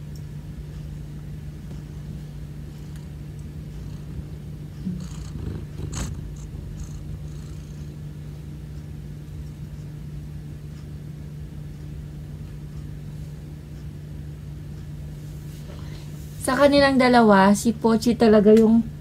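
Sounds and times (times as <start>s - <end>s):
steady low hum: 0.0s - 19.0s
cat purring: 1.6s - 9.7s.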